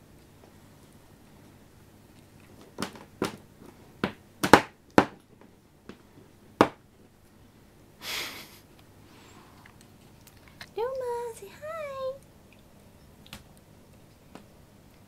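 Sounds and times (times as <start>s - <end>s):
cord smacking wooden floor: 2.6s - 3.4s, 4.0s - 6.0s, 6.6s - 6.8s.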